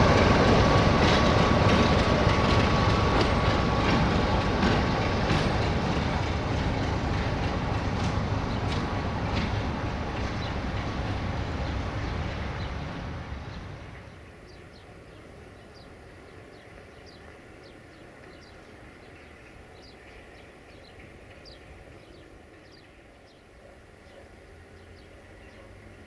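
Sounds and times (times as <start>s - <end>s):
diesel locomotive running: 0.0s - 26.0s
birds chirping: 0.4s - 26.0s.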